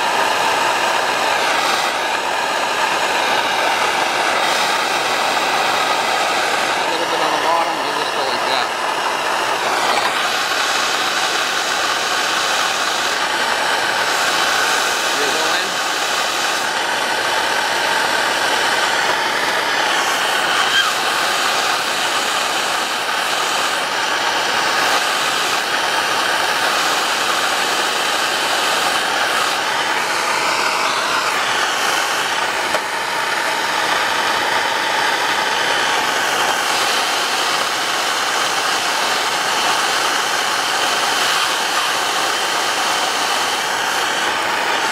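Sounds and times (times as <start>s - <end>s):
propane torch hissing: 0.0s - 44.9s.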